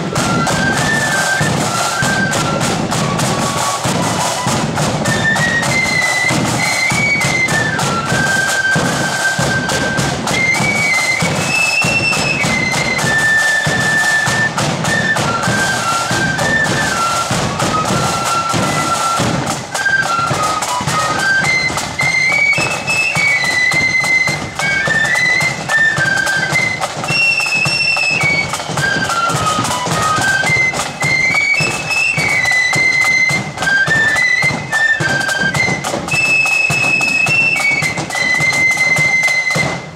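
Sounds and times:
drums beating steadily: 0:00.0 - 0:39.9
flutes playing in unison: 0:00.0 - 0:39.9.

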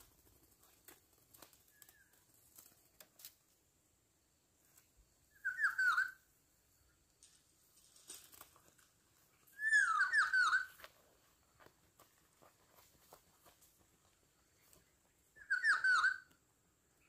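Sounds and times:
oriole whistled call: 0:05.3 - 0:06.2, 0:09.5 - 0:10.8, 0:15.4 - 0:16.3.

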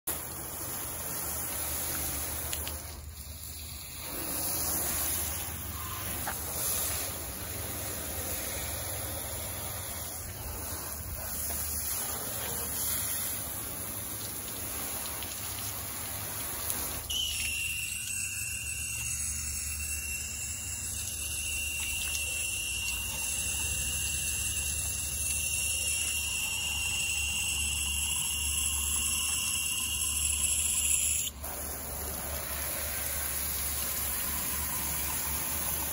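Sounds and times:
water spraying onto car: 0:00.1 - 0:35.9
high-pitched whine: 0:17.1 - 0:31.4.

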